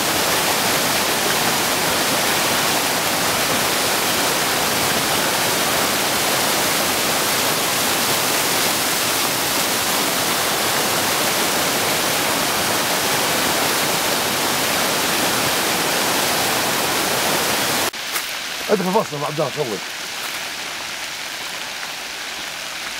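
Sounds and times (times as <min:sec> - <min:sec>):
waterfall rushing: 0:00.0 - 0:22.9.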